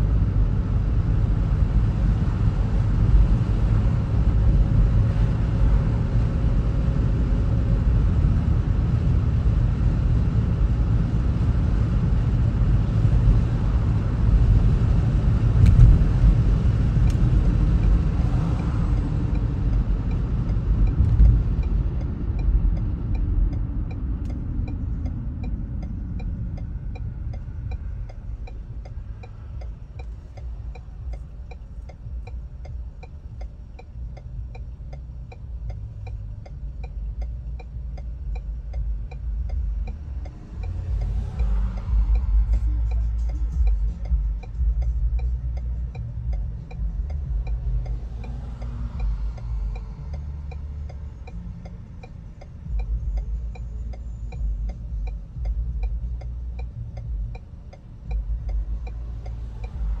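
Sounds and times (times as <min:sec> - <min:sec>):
car engine and tyre rumble: 0:00.0 - 1:00.0
passing traffic: 0:00.0 - 1:00.0
fine even ticking: 0:15.6 - 1:00.0.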